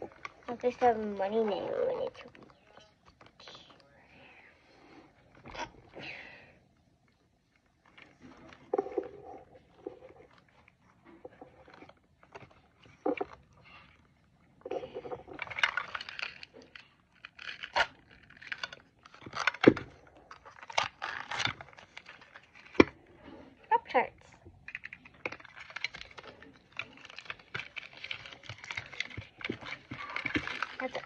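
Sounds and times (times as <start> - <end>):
wrapper crackling and rustling: 7.5 - 31.0.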